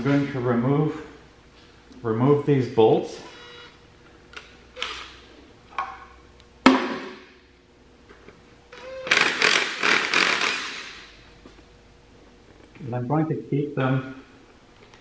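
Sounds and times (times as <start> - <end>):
socket ratchet clicking: 9.1 - 11.0.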